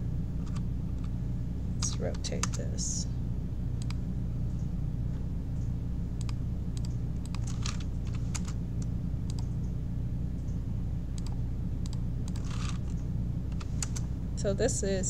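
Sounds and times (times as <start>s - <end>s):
steady low hum: 0.0s - 15.0s
keyboard keystrokes and clicks: 6.2s - 9.5s, 11.2s - 12.7s.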